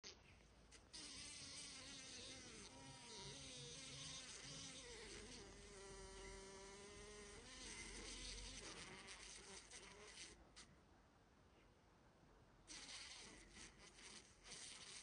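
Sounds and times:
fly wings buzzing: 12.7s - 15.0s.

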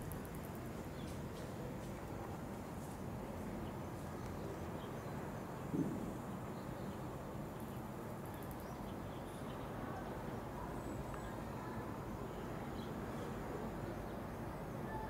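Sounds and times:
low outdoor background noise: 0.0s - 15.0s.

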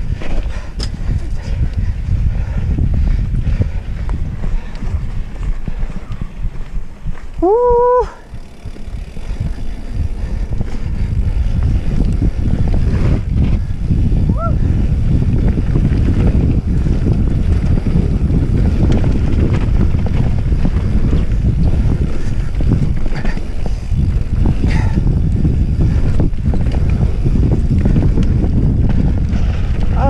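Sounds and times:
tyres rolling on dirt trail: 0.0s - 30.0s
wind buffeting microphone: 0.0s - 30.0s
rider whooping: 7.3s - 9.7s, 14.1s - 15.0s.

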